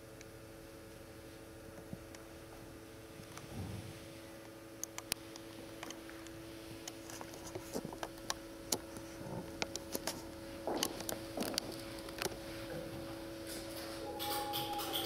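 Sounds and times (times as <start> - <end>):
soft low thuds: 3.5 - 4.1.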